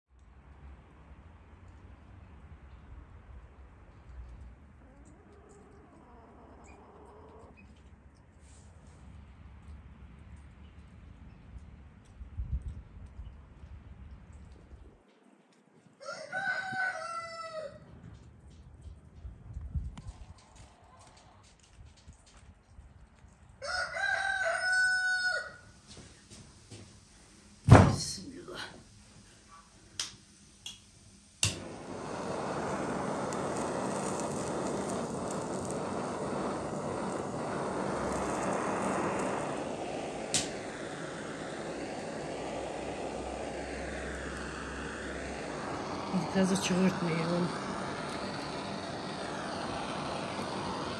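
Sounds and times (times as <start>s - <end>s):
faint outdoor background noise: 0.1s - 50.9s
gas torch flame hissing: 25.8s - 50.9s
gas torch igniter click: 30.0s - 50.9s
low rumble: 31.6s - 50.9s.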